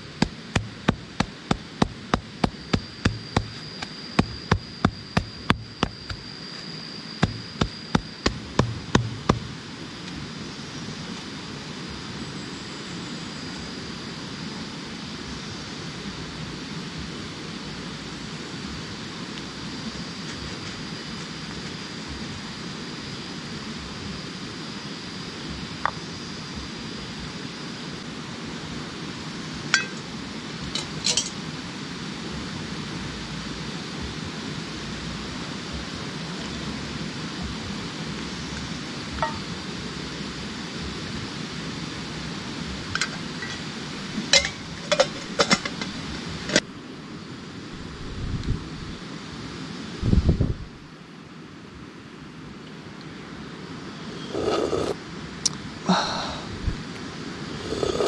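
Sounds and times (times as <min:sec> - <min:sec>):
forest ambience hiss: 0:00.0 - 0:58.0
high insect whine: 0:00.0 - 0:58.0
camp cookware clinking: 0:29.7 - 0:30.1, 0:30.8 - 0:31.4, 0:39.2 - 0:39.5, 0:43.0 - 0:46.6.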